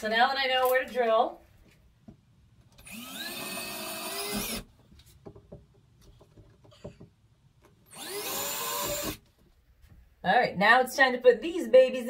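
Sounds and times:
cordless drill whining: 2.8 - 4.7, 7.9 - 9.2.

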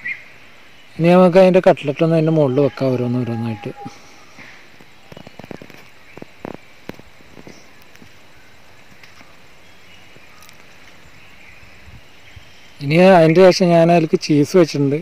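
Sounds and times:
steady low background hiss: 0.0 - 15.0
soft taps and rustles: 4.7 - 8.2.

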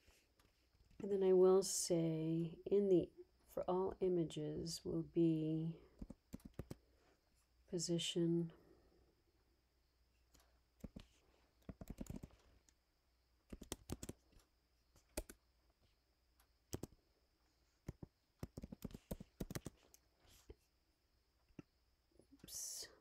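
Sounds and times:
faint keyboard typing: 0.1 - 1.1, 5.8 - 6.9, 10.3 - 12.8, 13.4 - 17.0, 17.8 - 20.6.

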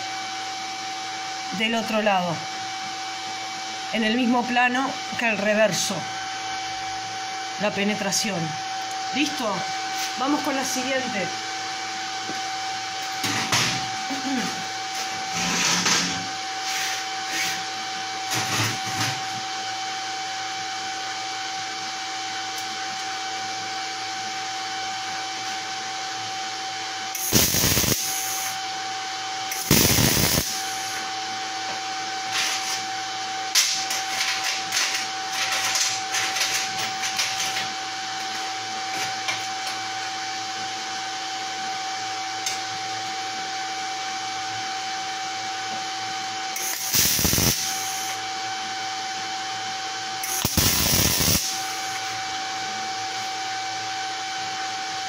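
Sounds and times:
cooling fan humming: 0.0 - 55.0
welding arc crackle: 27.2 - 28.6, 29.5 - 31.0, 46.6 - 48.2, 50.2 - 52.1.

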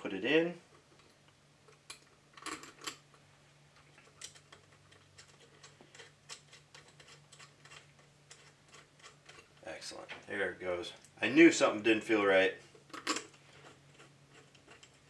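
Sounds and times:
hands clicking and tapping metal: 3.8 - 10.2.

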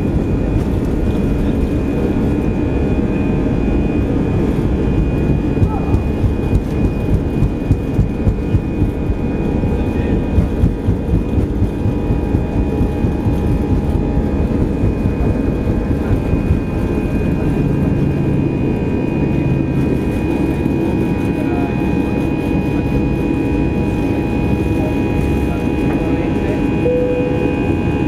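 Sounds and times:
jet engines at takeoff power: 0.0 - 28.0.

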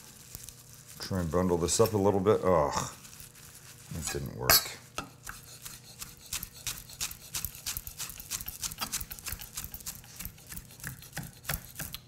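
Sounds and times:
knife chopping on wooden board: 5.0 - 12.0.

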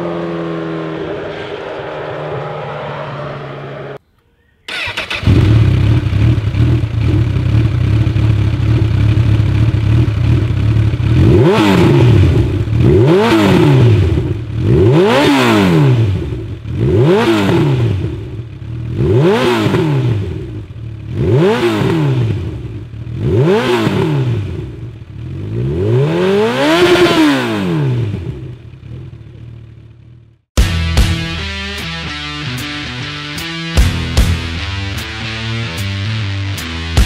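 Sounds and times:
motorcycle engine revving: 0.0 - 4.0, 4.7 - 31.1
motorcycle engine idling: 4.7 - 13.3, 18.0 - 23.6, 24.4 - 25.6, 28.2 - 30.4.

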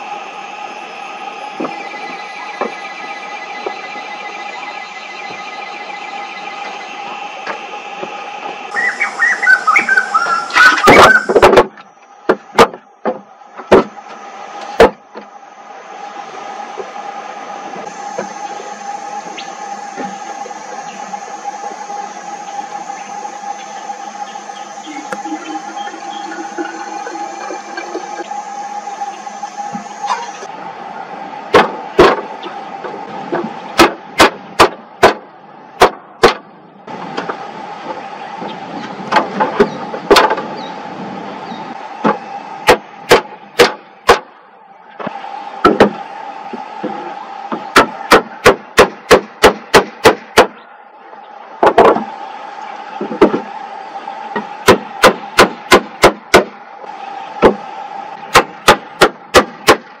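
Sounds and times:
steady hum: 0.0 - 60.0
hatchet striking wooden logs: 33.3 - 35.2, 35.8 - 36.4, 42.0 - 44.3, 47.7 - 50.6, 54.7 - 56.5, 58.3 - 59.8.

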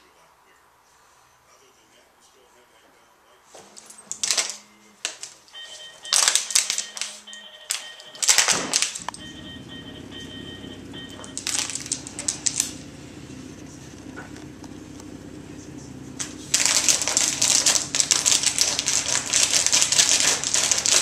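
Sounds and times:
dog toys clicking and rattling: 3.7 - 5.4, 11.2 - 12.8, 16.5 - 21.0
low steady hum: 9.0 - 21.0.

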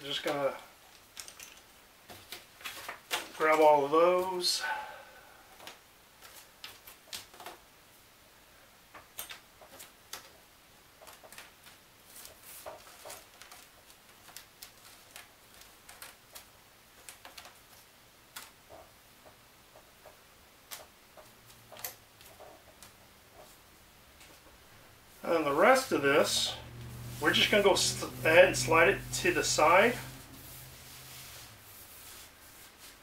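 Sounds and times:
wooden pieces clicking and tapping: 0.3 - 3.3, 8.9 - 23.5.

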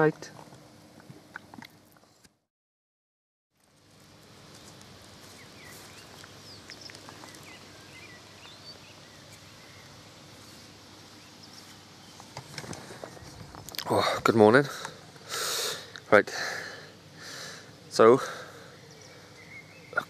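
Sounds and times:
outdoor background noise: 0.0 - 2.4, 3.5 - 20.0
small birds chirping: 4.2 - 20.0.

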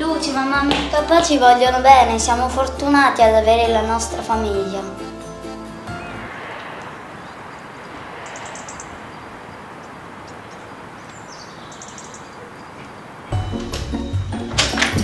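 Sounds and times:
outdoor background hiss: 4.7 - 14.2
small bird chirping rapidly: 7.1 - 13.1.

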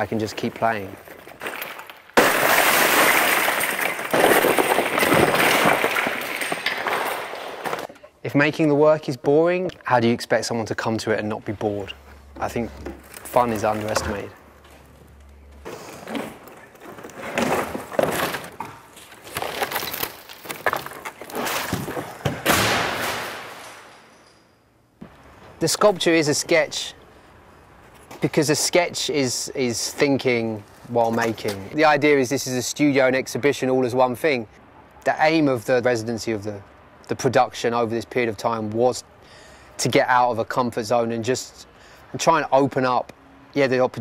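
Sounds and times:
timber and metal clattering: 0.0 - 8.1, 11.6 - 24.6
plastic pieces clattering onto concrete: 1.1 - 7.9
heavy slab crashing onto floor: 1.2 - 7.9.

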